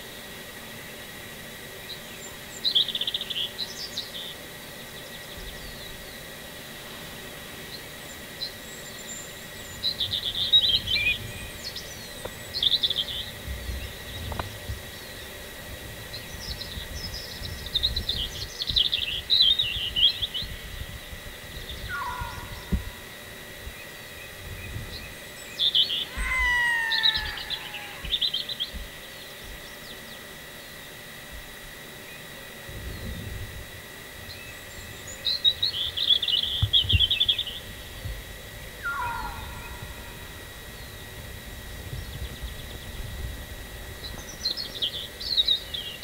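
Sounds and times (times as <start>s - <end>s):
songbirds chirping and trilling: 0.6s - 46.0s
lower falling bird calls: 21.5s - 30.1s, 38.8s - 41.1s.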